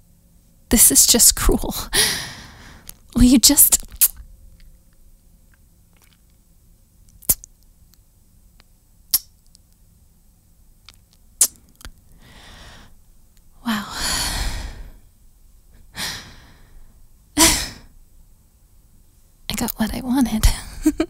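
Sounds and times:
woman speaking: 0:00.7 - 0:02.0, 0:03.2 - 0:04.0, 0:19.5 - 0:21.0
woman sighing: 0:01.9 - 0:02.8, 0:17.4 - 0:17.9
wet lip smacks: 0:05.9 - 0:06.4, 0:07.1 - 0:07.6, 0:09.1 - 0:09.6, 0:10.9 - 0:12.0.

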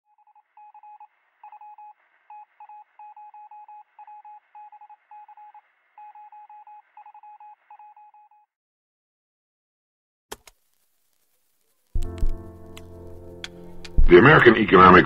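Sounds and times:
morse code beeps: 0:00.1 - 0:08.5
faint radio hiss: 0:10.4 - 0:15.0.

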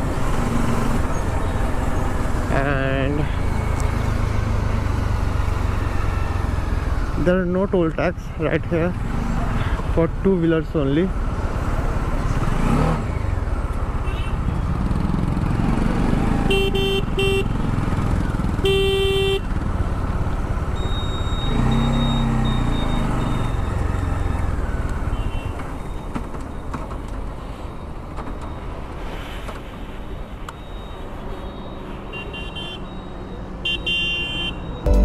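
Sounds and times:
horn beeps: 0:16.5 - 0:17.6, 0:18.6 - 0:19.5, 0:20.8 - 0:24.4, 0:30.6 - 0:35.0.

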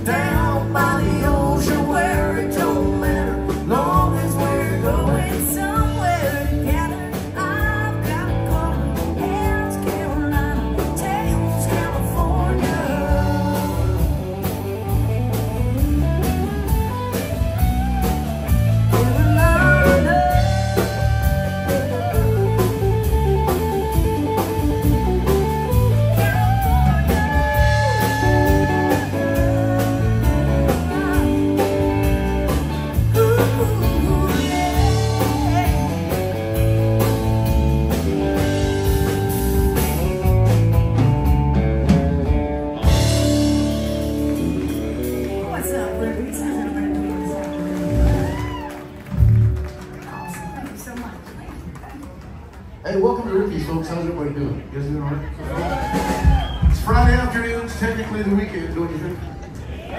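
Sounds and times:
person singing: 0:00.0 - 0:14.3, 0:18.9 - 0:22.9, 0:26.1 - 0:37.1
electric guitar: 0:00.0 - 0:52.8
live blues-rock band: 0:00.0 - 0:52.8, 0:54.6 - 0:58.5.

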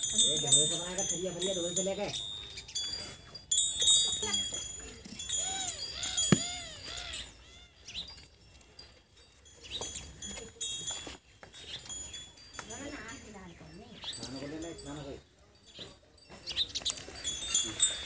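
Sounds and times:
brass bells ringing: 0:00.0 - 0:18.0
high animal calls: 0:05.3 - 0:08.0.

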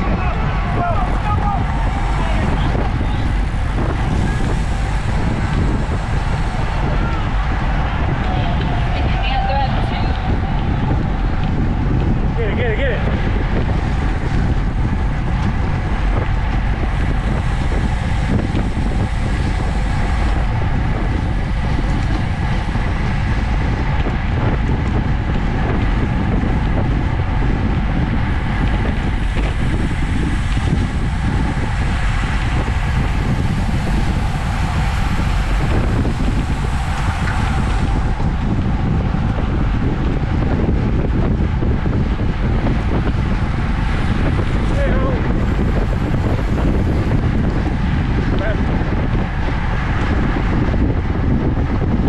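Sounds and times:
wind rushing over microphone: 0:00.0 - 0:52.0.

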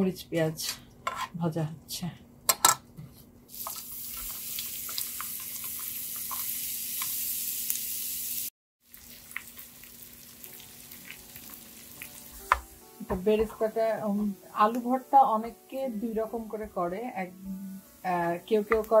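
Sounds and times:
onions sizzling in hot oil: 0:03.5 - 0:12.8, 0:14.2 - 0:19.0.

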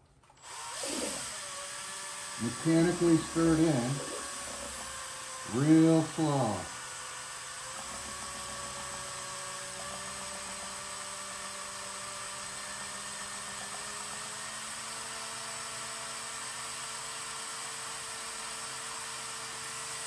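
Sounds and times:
electric paint mixer motor whining: 0:00.4 - 0:20.0.

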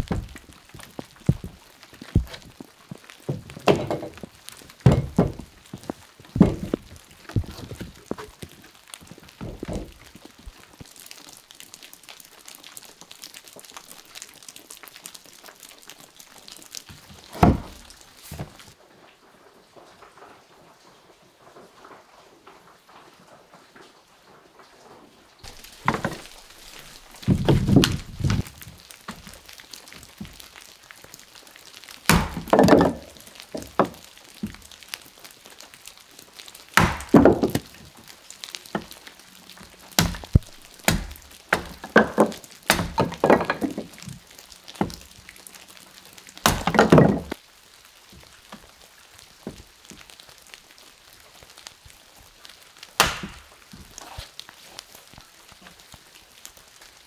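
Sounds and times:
heavy wooden thuds and knocks: 0:00.0 - 0:08.6, 0:09.3 - 0:10.2, 0:16.9 - 0:18.7, 0:25.5 - 0:29.4, 0:32.1 - 0:34.6, 0:36.8 - 0:37.8, 0:40.0 - 0:44.2, 0:44.8 - 0:45.1, 0:46.4 - 0:47.4.

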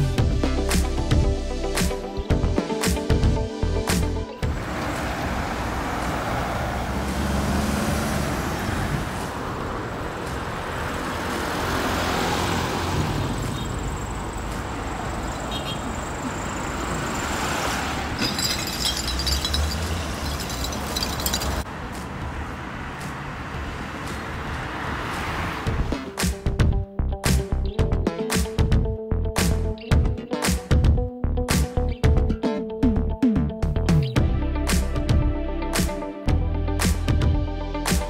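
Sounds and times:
road traffic passing: 0:03.6 - 0:27.6.

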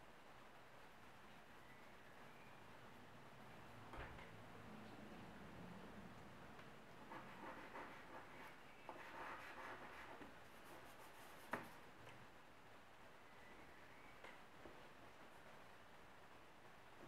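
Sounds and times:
chalk scratching on paper: 0:07.0 - 0:11.8.

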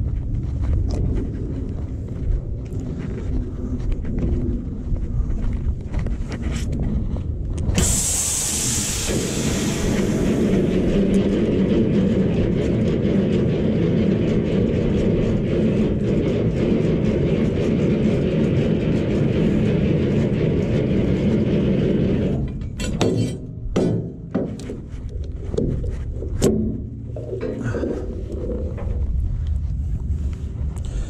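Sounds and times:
crank gearing grinding: 0:07.5 - 0:29.6
loud hiss: 0:07.8 - 0:11.0.

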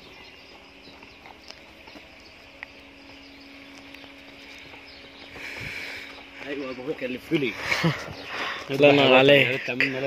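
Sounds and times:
footsteps on dirt ground: 0:00.0 - 0:10.0
steady low hum: 0:00.0 - 0:10.0.

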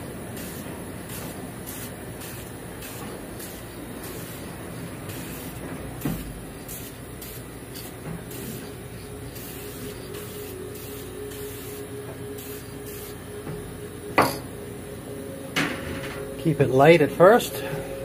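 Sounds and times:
aerosol can spraying: 0:00.3 - 0:13.2.

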